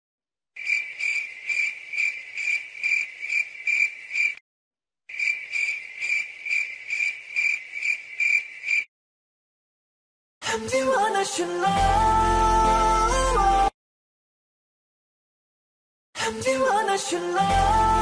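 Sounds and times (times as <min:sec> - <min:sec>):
cricket chirping: 0:00.6 - 0:04.4, 0:05.1 - 0:08.9.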